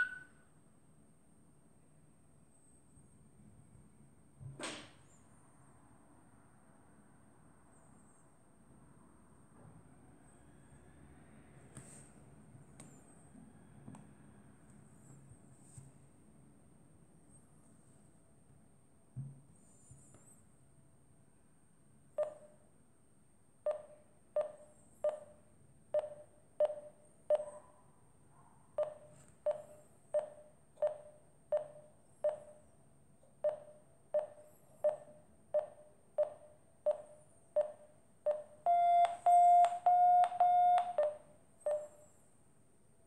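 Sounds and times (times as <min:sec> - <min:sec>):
variometer beeps: 0:00.0 - 0:00.3, 0:22.2 - 0:22.6, 0:23.6 - 0:27.6, 0:28.8 - 0:32.7, 0:33.4 - 0:42.2.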